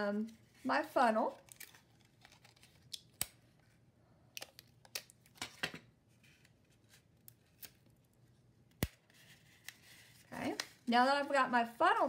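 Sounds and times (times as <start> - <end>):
tape and paper rustling: 0.2 - 3.8.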